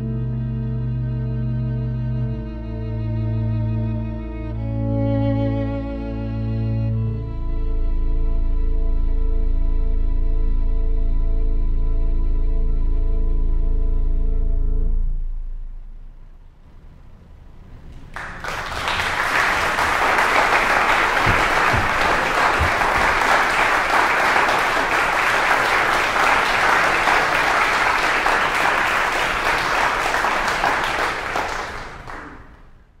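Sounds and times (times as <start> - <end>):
audience applauding: 18.0 - 32.8.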